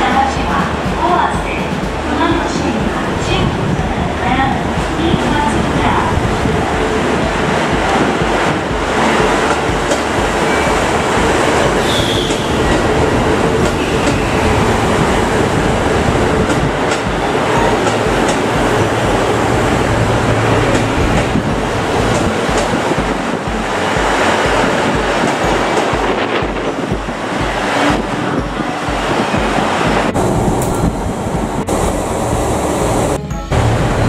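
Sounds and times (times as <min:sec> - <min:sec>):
diesel engines throbbing: 0:00.0 - 0:34.0
rumble of train cars: 0:00.0 - 0:34.0
wheels clicking over rail joints: 0:04.6 - 0:31.7
high brake squeal: 0:11.8 - 0:12.8.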